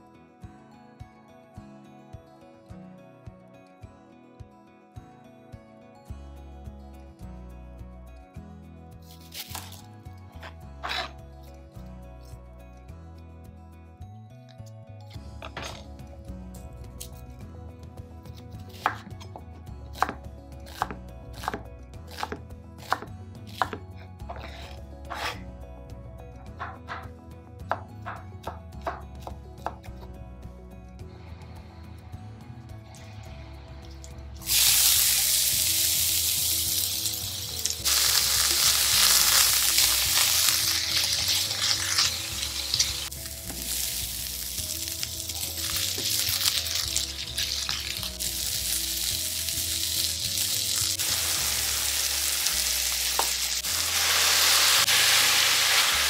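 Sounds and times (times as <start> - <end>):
knife chopping on wooden board: 20.0 - 25.4
onion sizzling in oil: 34.4 - 56.0.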